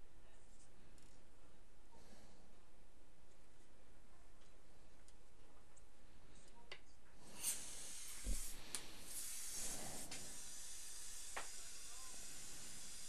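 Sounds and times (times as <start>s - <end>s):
dental equipment hiss: 7.2s - 13.0s.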